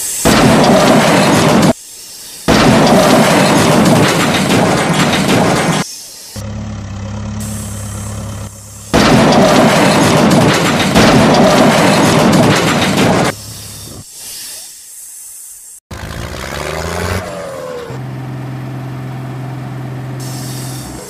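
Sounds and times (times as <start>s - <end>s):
low engine hum: 6.4s - 9.1s, 15.9s - 21.0s.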